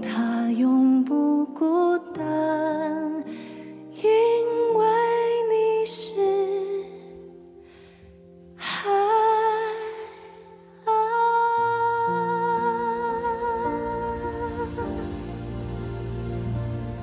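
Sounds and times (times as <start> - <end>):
soft low accompaniment notes: 10.3 - 17.0.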